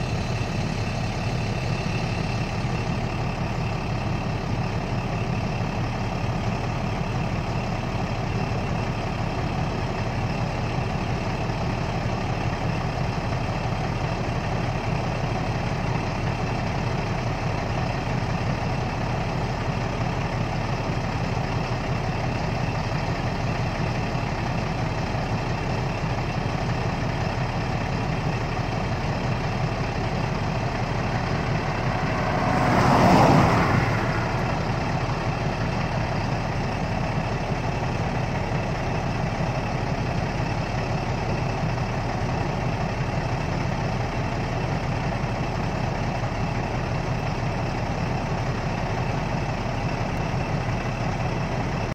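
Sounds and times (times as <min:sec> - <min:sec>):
vehicle engine idling: 0:00.0 - 0:51.9
rushing swell: 0:30.0 - 0:36.6.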